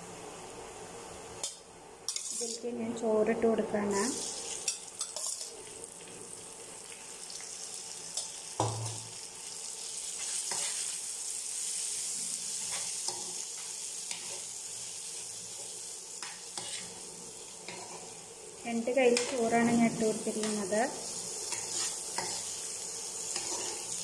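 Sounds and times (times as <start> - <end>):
rice sizzling in oil: 0.0 - 24.0
spoon clicking and scraping pan: 4.6 - 5.5, 21.5 - 22.5.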